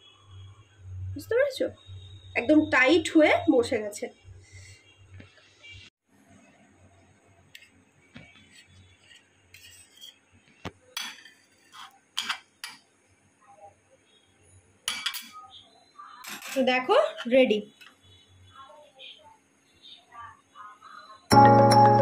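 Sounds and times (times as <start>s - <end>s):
spatula and spoon clinking on plate: 10.9s - 12.8s, 14.8s - 15.4s.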